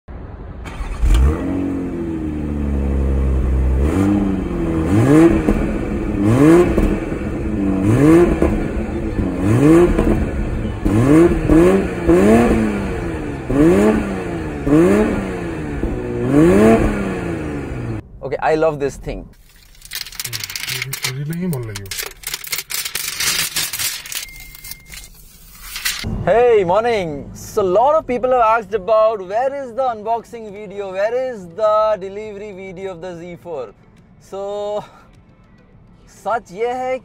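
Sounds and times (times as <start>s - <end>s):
car engine starting: 0.1s - 18.2s, 18.9s - 28.4s
car engine revving: 0.6s - 18.0s.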